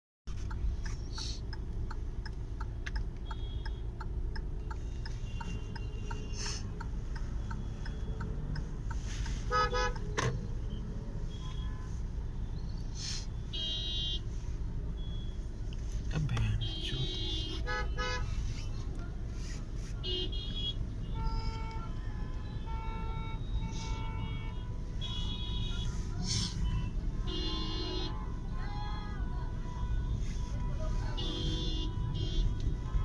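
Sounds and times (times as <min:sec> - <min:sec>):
road traffic rumble: 0:00.3 - 0:33.0
rapid regular ticking: 0:00.5 - 0:09.4
vehicle horn toot: 0:09.5 - 0:10.2, 0:13.5 - 0:14.2, 0:16.6 - 0:18.3, 0:20.0 - 0:28.4, 0:29.7 - 0:33.0.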